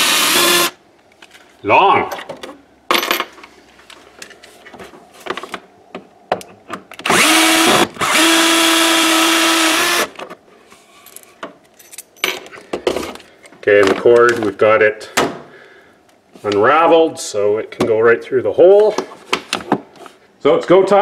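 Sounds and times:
cordless drill whirring: 0.0s - 0.8s, 7.1s - 10.1s.

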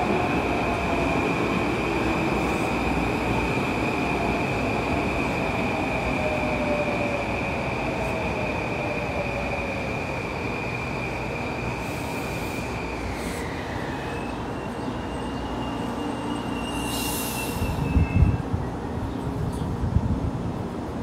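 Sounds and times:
train brakes squealing: 10.0s - 18.9s
air hiss: 16.8s - 17.9s.

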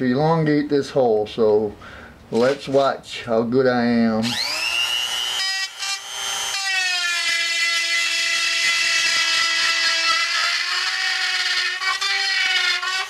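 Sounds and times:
rotary tool whining cutting plastic: 4.2s - 13.0s.

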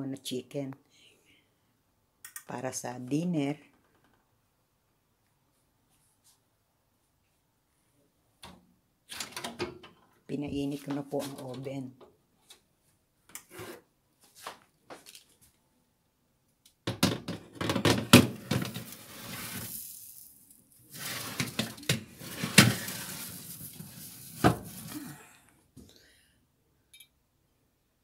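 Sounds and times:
baking tray scraping on oven rack: 20.9s - 24.9s.

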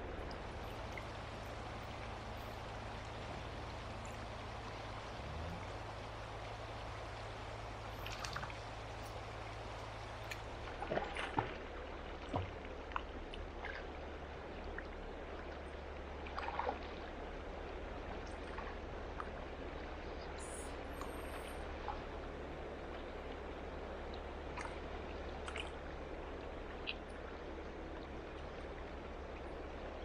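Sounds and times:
fast-flowing river rushing: 0.0s - 10.7s.

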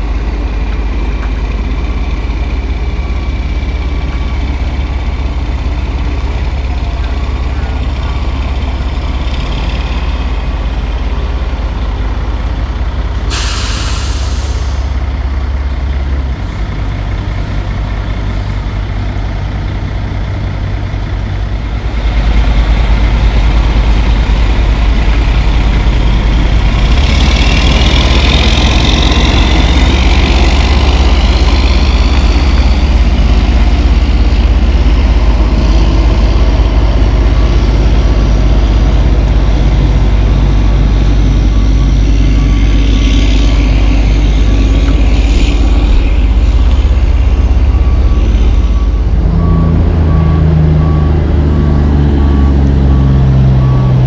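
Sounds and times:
truck diesel engine running: 0.0s - 54.0s
air brake hiss: 13.2s - 14.9s.

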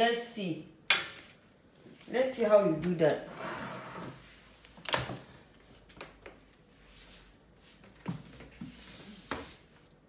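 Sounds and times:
brush sweeping tile floor: 3.4s - 4.8s, 6.3s - 10.0s.

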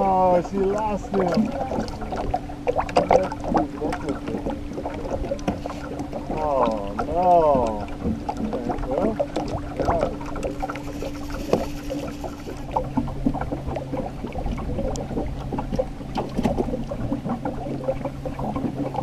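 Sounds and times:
boat motor humming: 0.0s - 19.0s
water lapping against hull: 0.0s - 19.0s.

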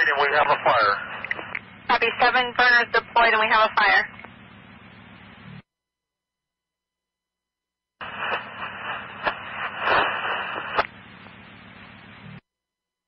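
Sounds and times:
radio clicks: 0.0s - 2.2s, 8.0s - 11.4s
radio static with whistle tone: 0.0s - 4.3s, 8.0s - 12.4s
low hum: 0.0s - 5.7s, 7.1s - 12.4s.

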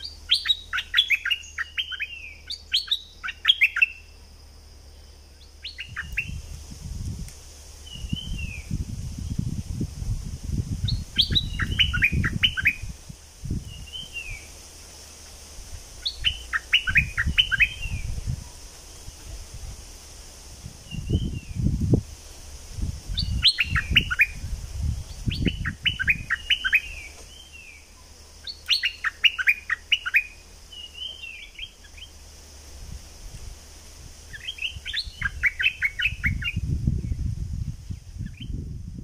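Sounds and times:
bird singing bubbly whistles: 0.0s - 4.1s, 5.4s - 6.5s, 7.8s - 9.4s, 10.8s - 13.0s, 16.0s - 18.2s, 20.9s - 21.7s, 23.1s - 32.1s, 34.3s - 37.2s, 38.2s - 38.6s.

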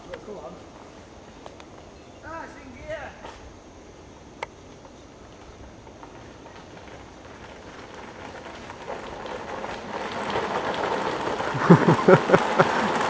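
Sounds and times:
plastic wheels rolling on gravel: 4.7s - 13.0s.

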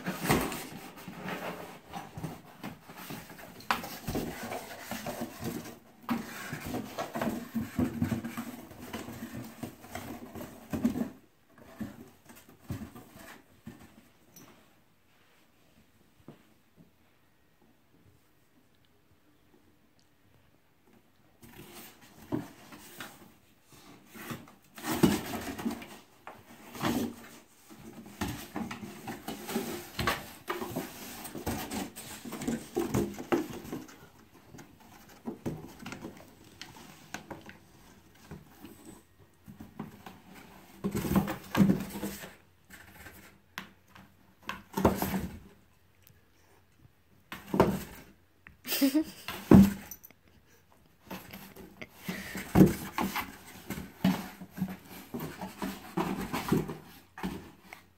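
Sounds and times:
cardboard rustling and scraping: 0.0s - 14.2s, 21.4s - 45.6s, 47.3s - 48.2s, 51.0s - 57.9s.

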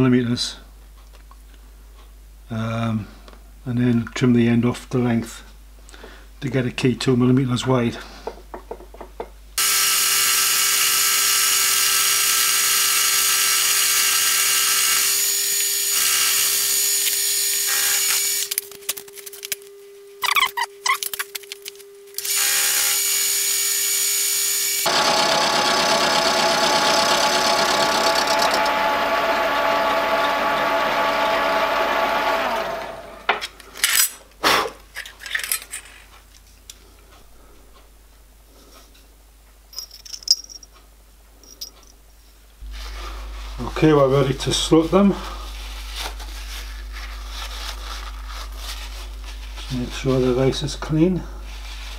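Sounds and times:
milling machine cutting metal: 9.6s - 18.5s, 22.2s - 33.3s
sharp metallic clinks: 39.7s - 40.7s.

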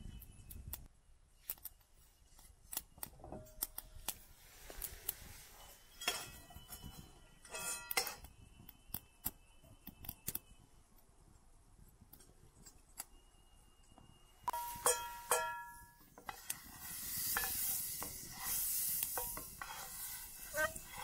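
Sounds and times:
fire crackling and popping: 13.9s - 21.0s
frying pan clinking on metal: 14.5s - 16.4s.

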